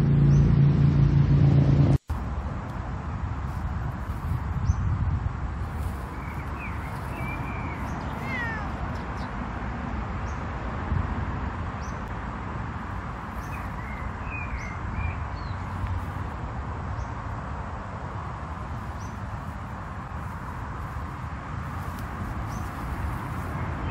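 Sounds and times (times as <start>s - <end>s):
cat chirping meows: 6.6s - 9.3s
steady low rumble: 12.0s - 23.9s.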